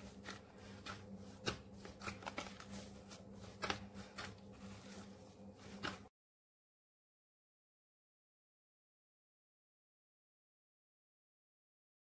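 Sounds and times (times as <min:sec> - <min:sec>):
gloved hand kneading dough: 0:00.0 - 0:06.1.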